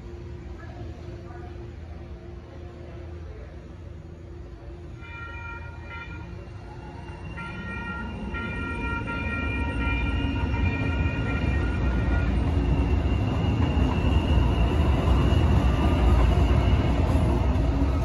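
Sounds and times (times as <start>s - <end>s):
light rail train rumbling: 0.0s - 18.0s.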